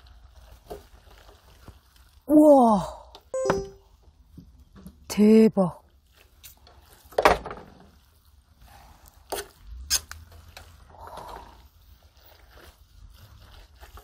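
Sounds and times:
wet squelches of pasta: 0.0 - 3.3, 5.8 - 7.2, 7.8 - 14.0.

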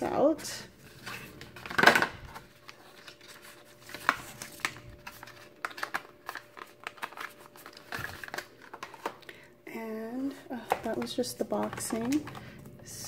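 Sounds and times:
paper rustling: 0.8 - 9.1.

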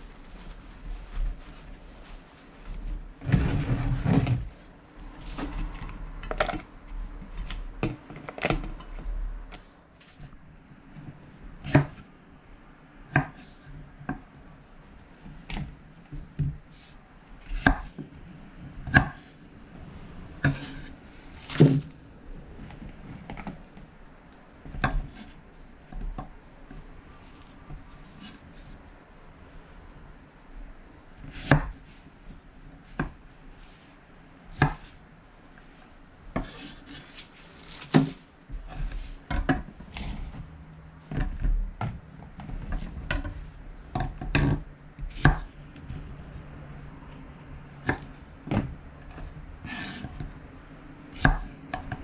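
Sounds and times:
paper towel rustling: 0.0 - 6.0, 21.2 - 23.1, 36.7 - 38.3.

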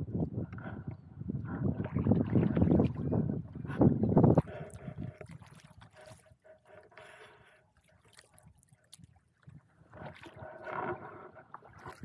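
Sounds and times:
small splashes: 7.8 - 12.0.

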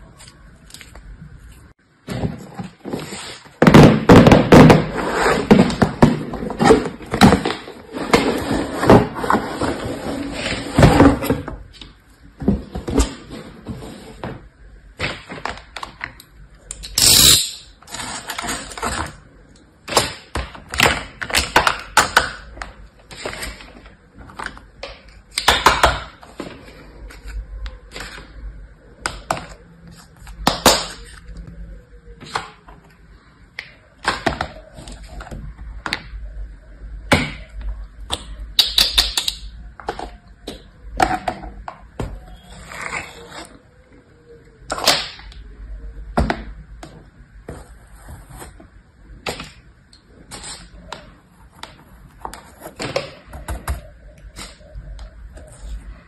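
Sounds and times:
plastic toys clicking and knocking: 38.1 - 41.8.

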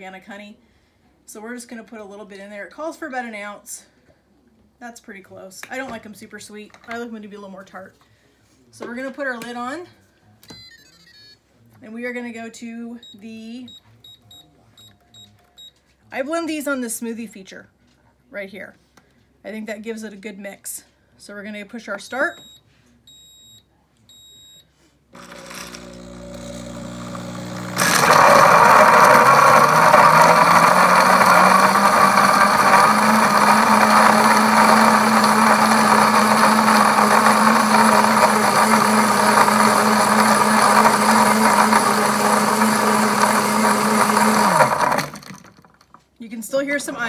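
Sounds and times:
blender motor whirring: 25.2 - 46.0
ice blending: 25.2 - 46.0.

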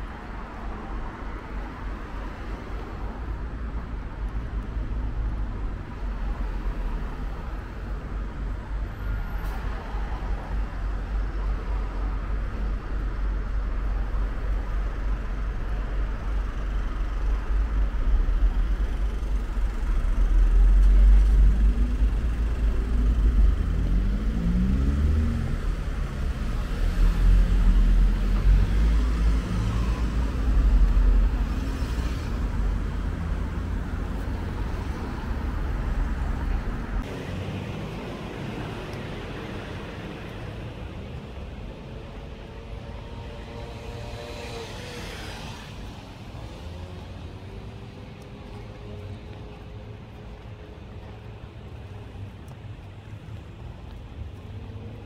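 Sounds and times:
cars and bus passing: 0.0 - 55.0
low traffic rumble: 0.0 - 55.0
vehicle engine accelerating: 18.5 - 40.1.

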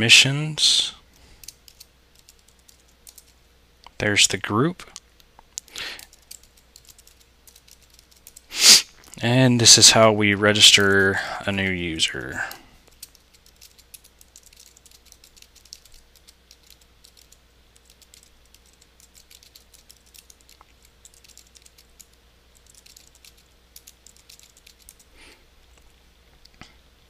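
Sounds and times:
keyboard typing: 1.4 - 3.4, 5.6 - 8.5, 12.8 - 25.1.

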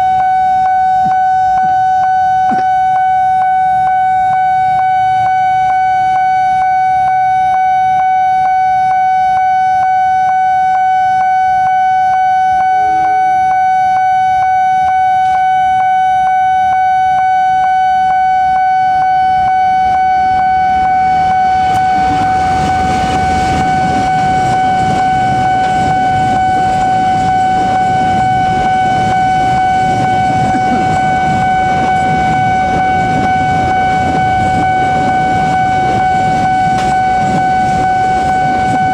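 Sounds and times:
level-crossing warning alarm: 0.0 - 38.9
train rumbling past: 20.2 - 38.9.

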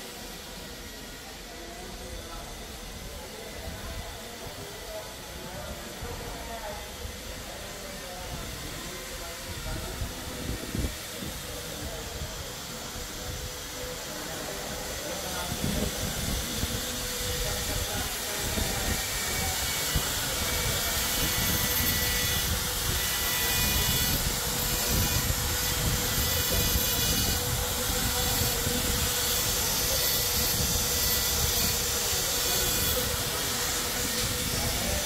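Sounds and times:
construction machinery drone: 0.0 - 35.0
pneumatic carving tool on stone: 7.0 - 35.0.

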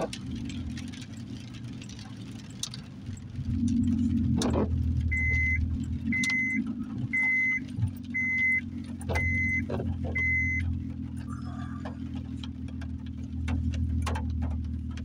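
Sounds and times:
low engine hum: 0.0 - 15.0
dashboard warning chime beeping: 5.0 - 10.7.

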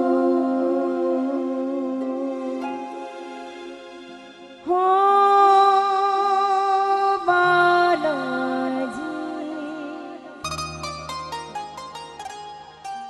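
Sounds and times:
woman singing devotional song: 0.0 - 3.2, 4.6 - 10.5
quiet instrumental accompaniment: 0.0 - 5.4, 10.4 - 13.0.

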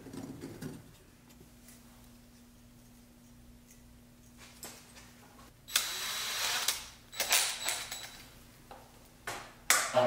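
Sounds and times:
cordless drill bursts: 5.7 - 7.8.

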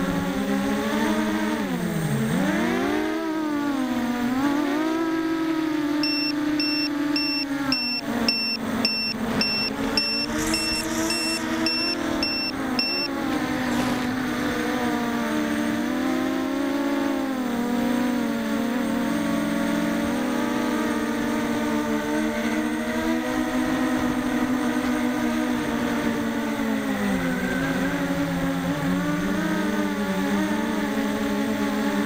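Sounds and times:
drone motors buzzing whine: 0.0 - 32.0
high electronic beeper: 6.0 - 13.2.

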